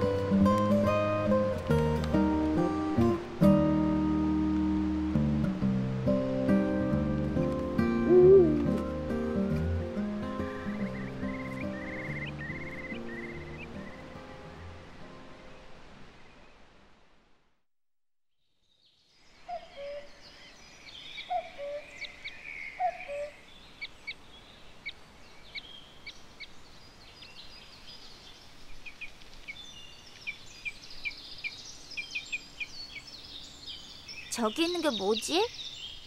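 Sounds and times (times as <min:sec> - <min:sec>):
high bird chirps and trills: 0:10.6 - 0:14.0, 0:19.0 - 0:36.0.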